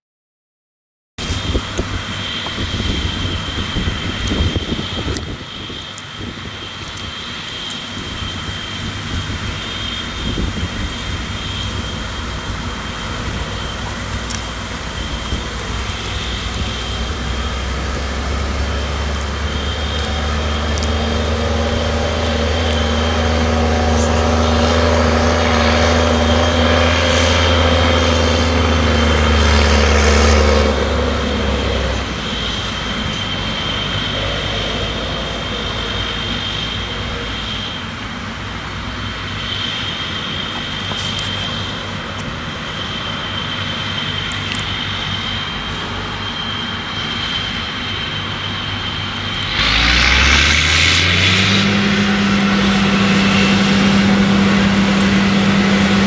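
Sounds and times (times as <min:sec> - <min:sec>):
high steady whine: 0:01.2 - 0:56.0
tractor diesel engine running: 0:01.2 - 0:56.0.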